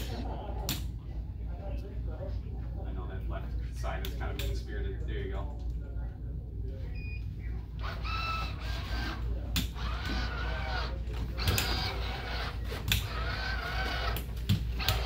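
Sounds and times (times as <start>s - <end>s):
exoskeleton leg motors whining: 7.8s - 15.0s.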